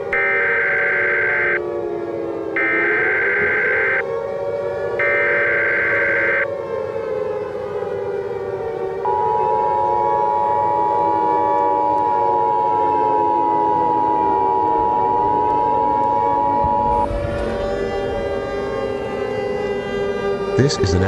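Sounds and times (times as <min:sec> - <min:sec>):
high data tones: 0:00.0 - 0:01.6, 0:02.6 - 0:04.0, 0:05.0 - 0:06.4, 0:09.1 - 0:19.2
siren wailing: 0:00.0 - 0:21.0
two-tone alert signal: 0:00.1 - 0:01.6, 0:02.6 - 0:04.0, 0:05.0 - 0:06.4.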